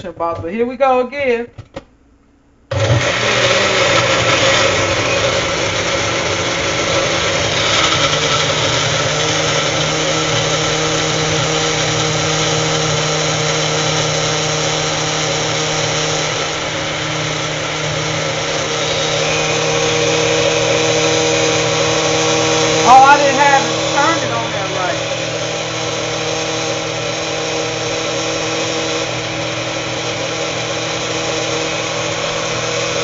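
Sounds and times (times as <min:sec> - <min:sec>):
blender running: 0:02.7 - 0:33.0.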